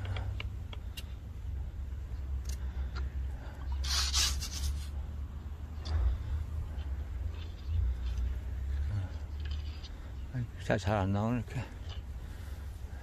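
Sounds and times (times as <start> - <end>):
low steady rumble: 0.0 - 13.0
rubbing and scraping handling noise: 3.7 - 5.0, 5.8 - 10.8.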